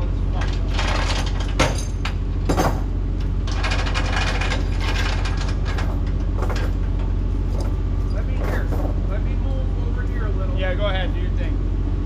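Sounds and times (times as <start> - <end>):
diesel engine running under load: 0.0 - 12.0
metal scraping and rattling: 0.3 - 10.4.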